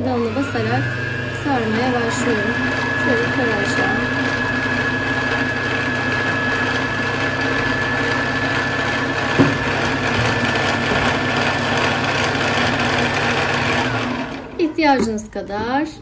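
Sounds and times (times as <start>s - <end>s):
sewing machine motor whining: 0.0s - 9.2s, 9.8s - 14.8s
brief knock: 9.4s - 9.6s.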